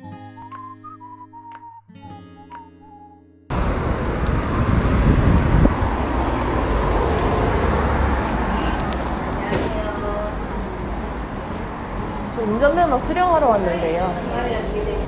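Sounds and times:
acoustic guitar music: 0.0 - 3.5, 11.3 - 15.0
street traffic noise: 3.5 - 15.0.

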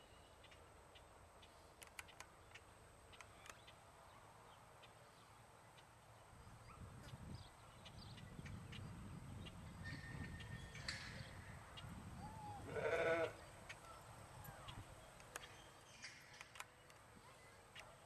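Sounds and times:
faint clicks: 1.4 - 3.8.

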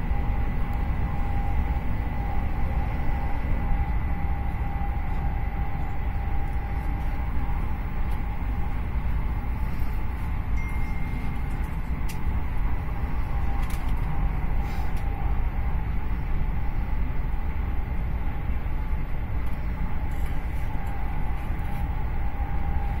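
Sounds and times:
faint steady tone: 0.0 - 11.8
train wheels rumbling on rail: 0.0 - 23.0.

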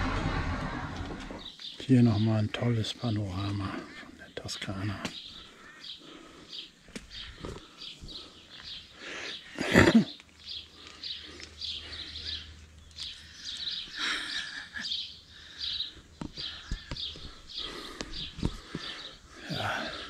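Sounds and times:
loud rush of noise: 0.0 - 1.5
small birds chirping: 0.2 - 20.0.

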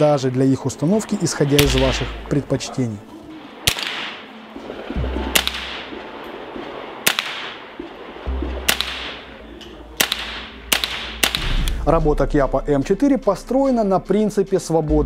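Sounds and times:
suppressed rifle shots: 3.6 - 4.4, 5.4 - 5.9, 7.0 - 7.6, 8.7 - 9.3, 10.0 - 11.9.

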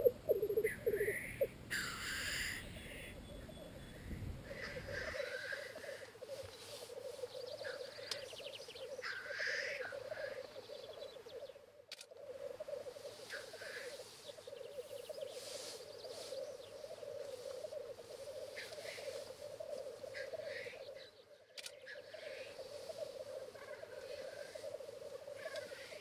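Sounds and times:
grouse bubbling song: 0.0 - 26.0
short hissing bird calls: 13.0 - 20.7.

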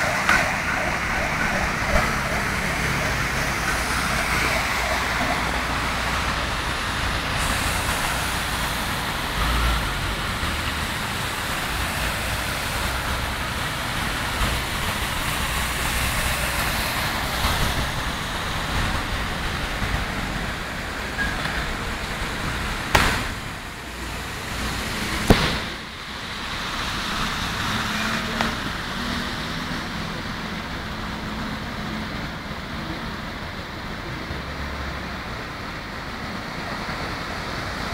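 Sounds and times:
tyres spraying through water: 0.0 - 31.9
sharp knocks: 22.9 - 23.4.

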